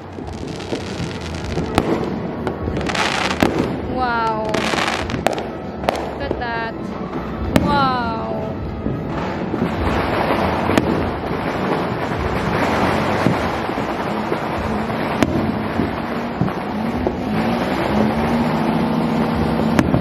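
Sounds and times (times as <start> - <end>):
sharp firecracker cracks: 0.0 - 3.8, 9.1 - 20.0
distant fireworks din: 0.0 - 20.0.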